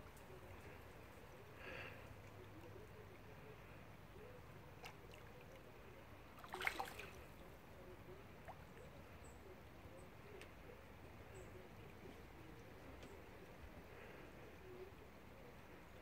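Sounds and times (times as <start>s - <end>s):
creek flowing: 0.0s - 16.0s
splashy crackling: 6.4s - 7.3s.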